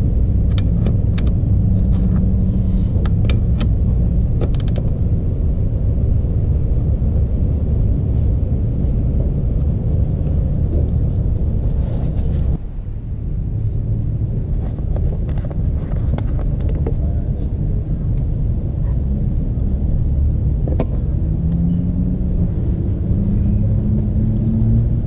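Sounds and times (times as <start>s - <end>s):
low rumble: 0.0s - 25.0s
ratchet clicking: 3.0s - 5.0s.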